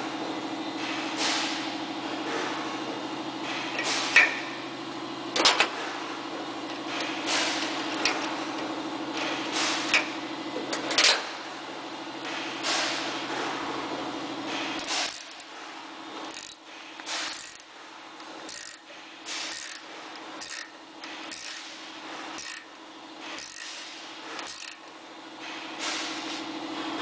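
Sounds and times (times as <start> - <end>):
steady low hum: 0.0 - 27.0
ratchet wrench clicking: 14.8 - 15.4, 16.3 - 16.6, 17.2 - 17.7, 18.5 - 18.8, 19.5 - 21.6, 22.4 - 22.7, 23.4 - 23.8, 24.4 - 24.8.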